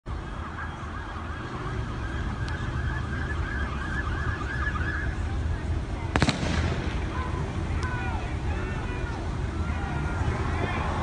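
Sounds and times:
siren yelping: 0:00.1 - 0:05.3
low rumble: 0:05.2 - 0:08.5.

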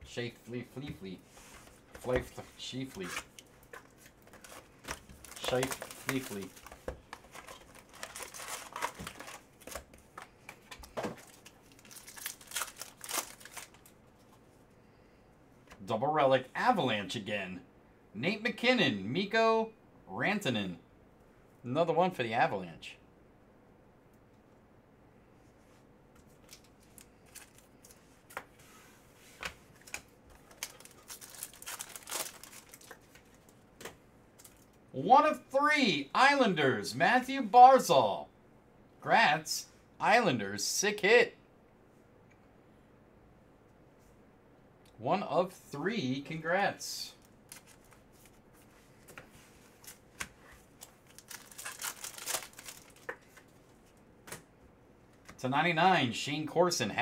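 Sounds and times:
cards handled: 0:02.0 - 0:13.8
foil wrappers crinkling: 0:03.1 - 0:09.9, 0:11.2 - 0:13.9, 0:29.8 - 0:33.5, 0:50.7 - 0:53.5.

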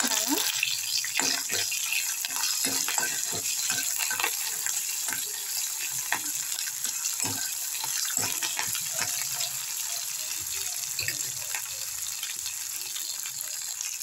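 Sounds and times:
spices sizzling in hot oil: 0:00.0 - 0:14.0
spatula scraping and knocking pan: 0:01.1 - 0:09.4.

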